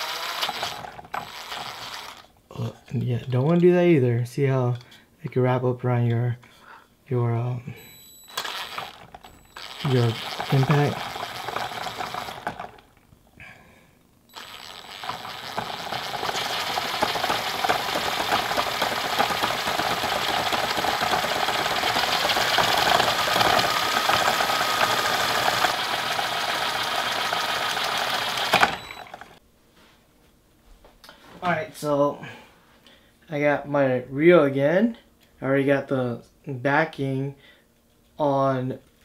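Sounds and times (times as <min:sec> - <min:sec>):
cordless drill whirring: 0:00.0 - 0:02.3, 0:07.8 - 0:12.9, 0:14.3 - 0:29.4.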